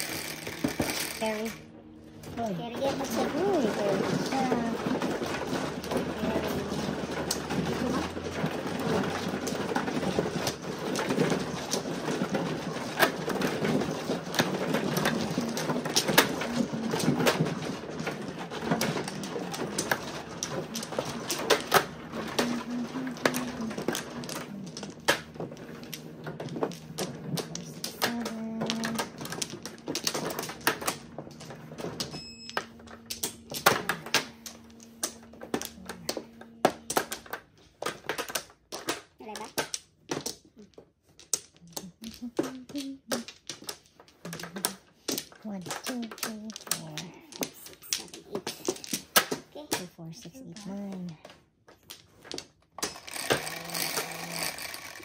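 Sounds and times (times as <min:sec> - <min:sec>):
mahjong tiles clacking: 0:00.0 - 0:01.6, 0:02.2 - 0:55.0.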